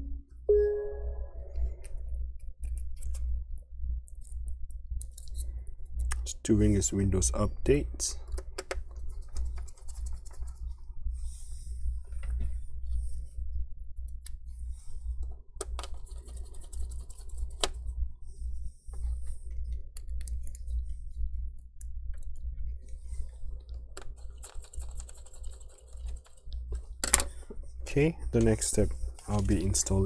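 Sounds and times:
low hum: 0:00.0 - 0:30.0
scratchy rubbing: 0:15.8 - 0:17.7.

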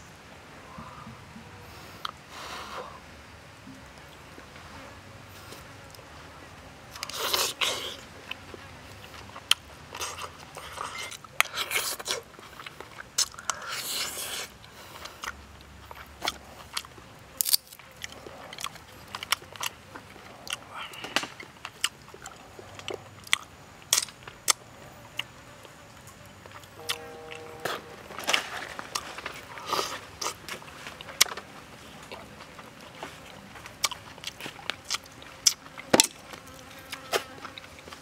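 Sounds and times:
man chewing and smacking: 0:06.9 - 0:38.0.

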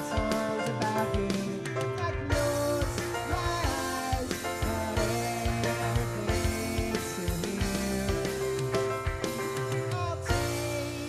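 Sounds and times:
electric guitar: 0:00.0 - 0:11.0
electric keyboard chords: 0:00.0 - 0:11.0
steady drum beat: 0:00.0 - 0:11.0.

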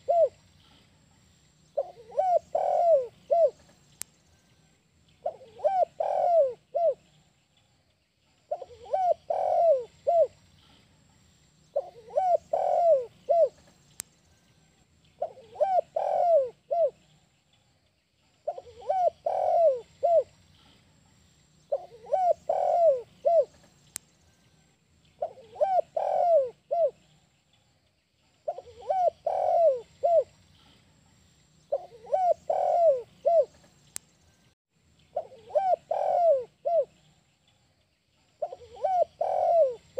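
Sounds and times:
dove cooing: 0:00.0 - 0:00.4, 0:01.8 - 0:03.7, 0:05.2 - 0:07.0, 0:08.5 - 0:10.4, 0:11.7 - 0:13.7, 0:15.2 - 0:17.0, 0:18.4 - 0:20.3, 0:21.7 - 0:23.6, 0:25.2 - 0:27.1, 0:28.5 - 0:30.7, 0:31.7 - 0:33.7, 0:35.2 - 0:37.0, 0:38.4 - 0:39.9.

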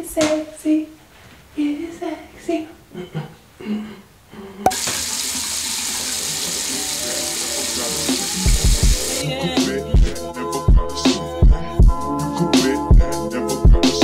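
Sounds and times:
water running into sink: 0:04.7 - 0:09.2.

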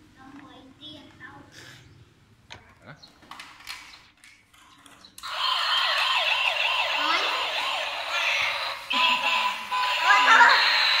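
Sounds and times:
toy siren yelping: 0:05.2 - 0:11.0.

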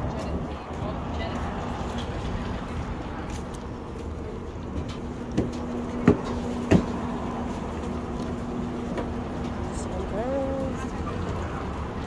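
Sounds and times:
sharp knocks: 0:05.4 - 0:07.0.

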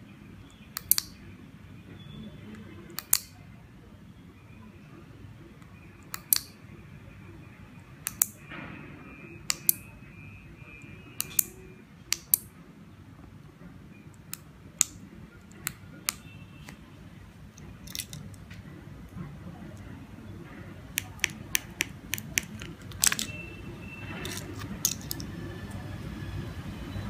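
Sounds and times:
remote button clicks: 0:20.9 - 0:23.5.

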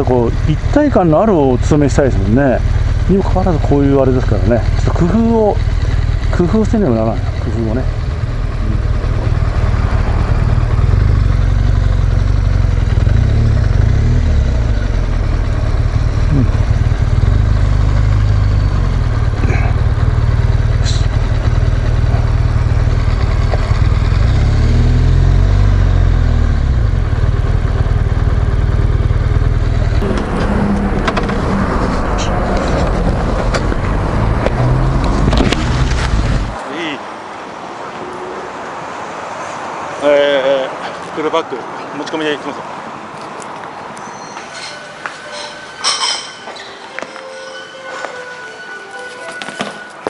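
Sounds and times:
motorcycle engine rumbling: 0:00.0 - 0:37.0.

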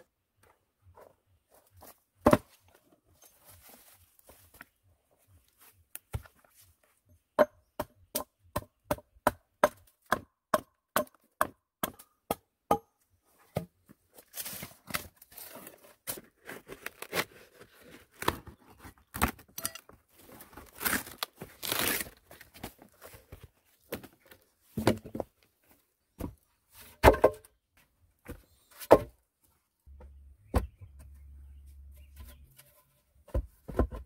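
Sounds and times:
hatchet chopping wood: 0:07.4 - 0:12.9
wooden boards knocking and scraping: 0:24.8 - 0:25.3, 0:26.2 - 0:27.5, 0:28.3 - 0:29.2, 0:32.0 - 0:34.0.

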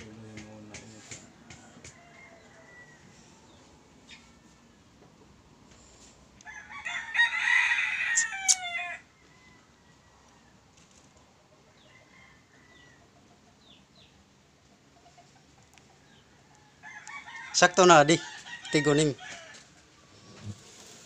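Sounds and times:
rooster crowing: 0:00.0 - 0:04.7, 0:06.4 - 0:10.7, 0:11.7 - 0:13.2, 0:16.0 - 0:20.3.

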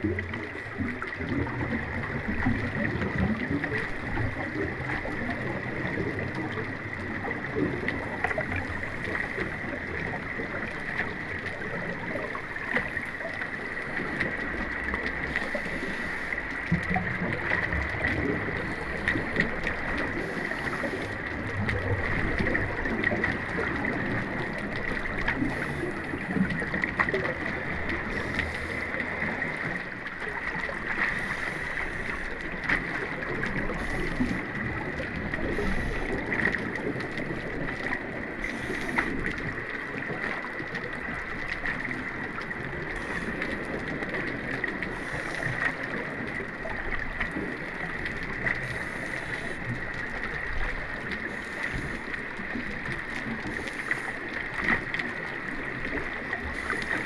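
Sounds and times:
underwater bubbling and gurgling: 0:00.0 - 0:57.0.

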